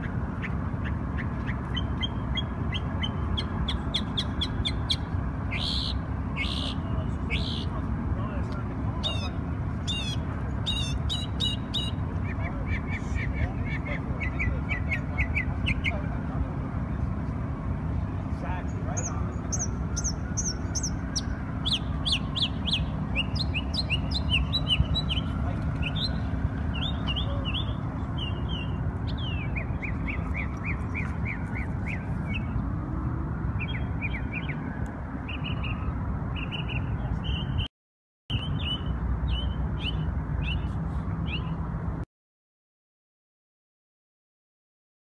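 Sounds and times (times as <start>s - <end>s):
songbird chirping: 0.0s - 7.8s, 17.9s - 32.7s
city traffic rumble: 0.0s - 37.7s, 38.3s - 42.1s.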